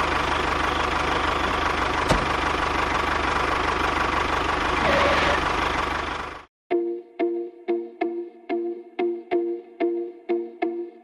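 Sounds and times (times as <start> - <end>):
engine idling with knocking: 0.0 - 6.5.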